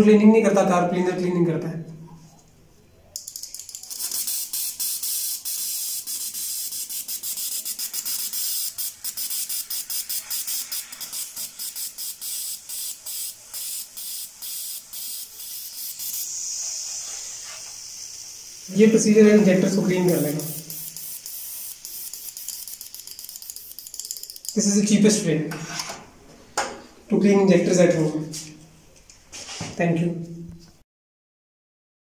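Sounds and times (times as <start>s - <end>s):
aerosol spray hissing: 3.2s - 24.6s.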